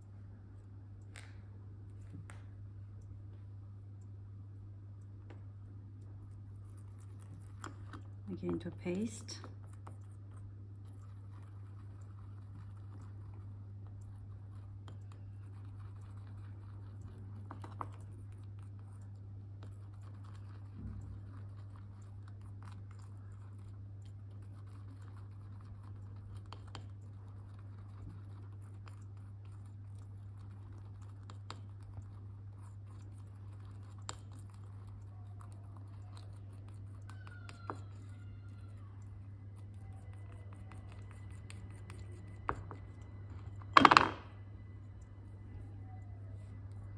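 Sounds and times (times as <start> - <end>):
low hum: 37.1 - 46.9.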